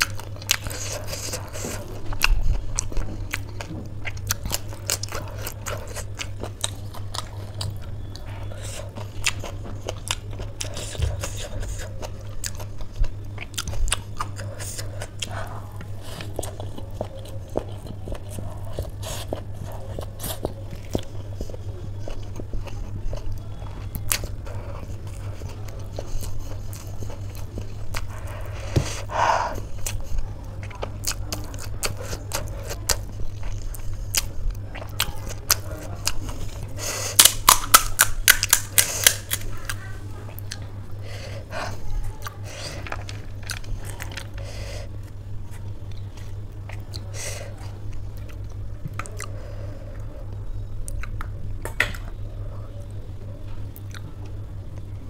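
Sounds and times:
wet chewing mouth sounds: 0.0s - 50.1s
steady low hum: 0.0s - 55.0s.

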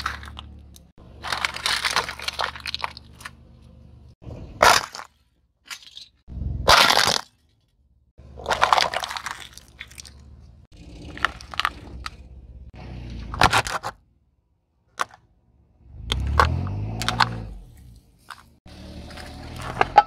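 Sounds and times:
plastic crunching and cracking: 0.0s - 3.6s, 4.6s - 7.6s, 8.4s - 10.3s, 11.0s - 12.2s
low tyre rumble: 0.0s - 4.9s, 6.3s - 6.9s, 7.7s - 14.4s, 15.1s - 20.0s.

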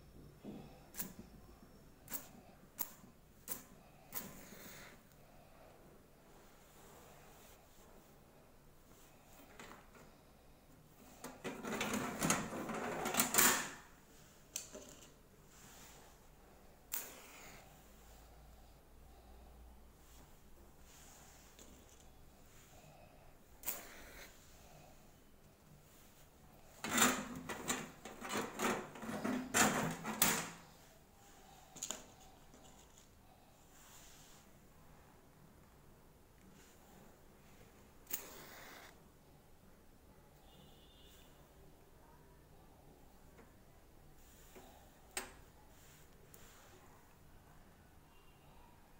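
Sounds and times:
copper plate scraping and knocking: 26.8s - 30.5s.

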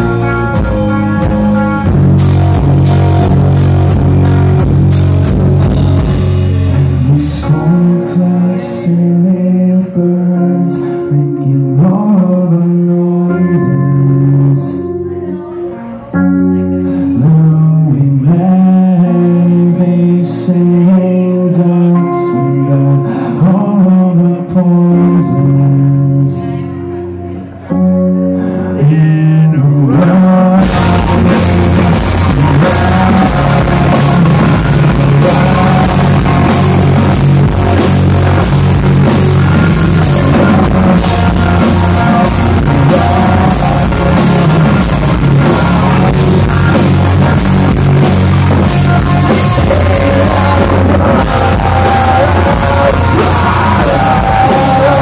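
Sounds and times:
drums: 0.0s - 14.7s, 28.4s - 55.0s
bass guitar: 0.0s - 55.0s
distorted electric guitars: 0.0s - 55.0s
live rock band playing: 0.0s - 55.0s.

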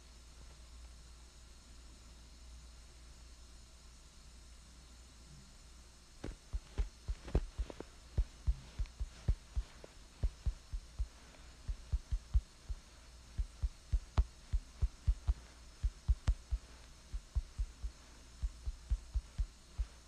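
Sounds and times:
steady low hum: 0.0s - 20.0s
soft low clicky thumps: 6.2s - 20.0s.

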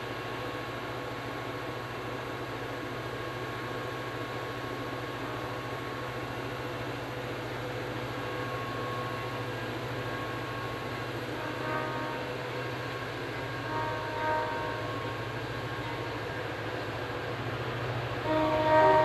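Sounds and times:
diesel locomotive engine running: 0.0s - 19.0s
distant train horn blasts: 8.2s - 19.0s.

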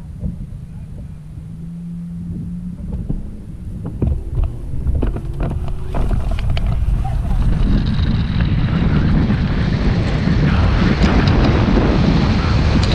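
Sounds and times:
steady hum: 0.0s - 12.9s
wind buffeting microphone: 0.0s - 12.9s
sharp clicks and knocks: 2.8s - 8.5s.

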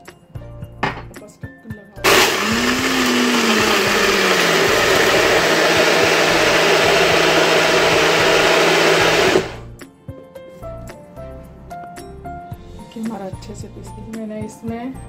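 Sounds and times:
electric blender running: 2.0s - 9.7s.

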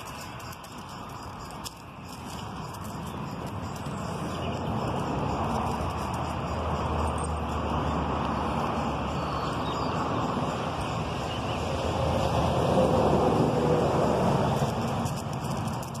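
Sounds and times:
road traffic rumble: 0.0s - 16.0s
vehicle passing by: 3.8s - 15.9s.

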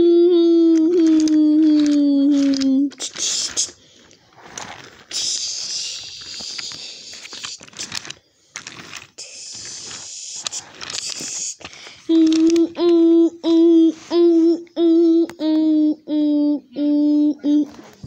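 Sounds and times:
toy trains clicking on wooden track: 0.5s - 13.2s
soft hissing: 1.0s - 15.2s.

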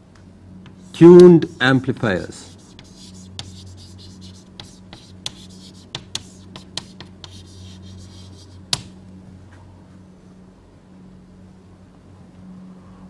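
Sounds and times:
low electrical hum: 0.0s - 13.0s
pen writing on paper: 0.7s - 8.9s.

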